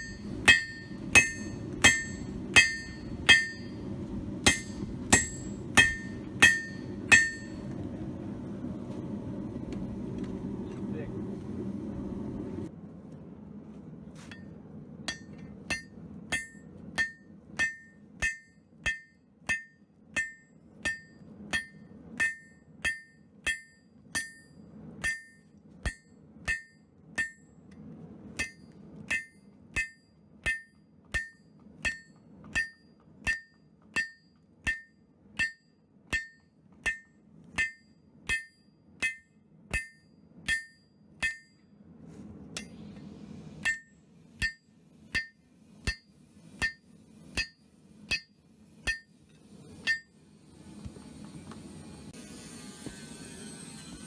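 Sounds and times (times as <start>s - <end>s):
hammer striking steel on anvil: 0.0s - 7.8s, 15.1s - 27.7s, 28.4s - 41.7s, 42.6s - 42.9s, 43.6s - 50.2s.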